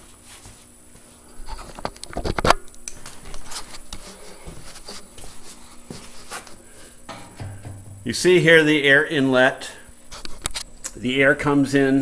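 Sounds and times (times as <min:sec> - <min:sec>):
sharp knocks: 0:07.1 - 0:08.1.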